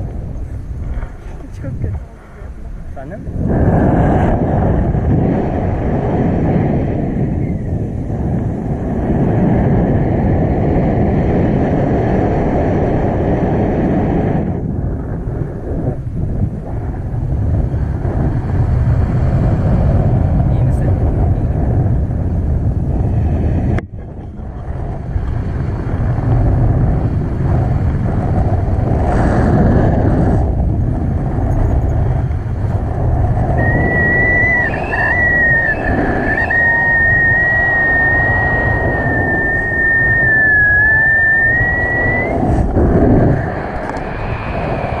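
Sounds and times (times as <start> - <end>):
wind buffeting microphone: 0.0 - 45.0
thin high whistling tone: 33.6 - 42.4.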